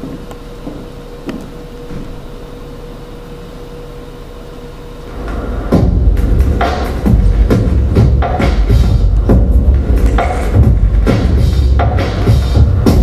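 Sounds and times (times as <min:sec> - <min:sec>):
faint steady hum: 0:00.0 - 0:13.0
loud low rumble: 0:05.0 - 0:13.0.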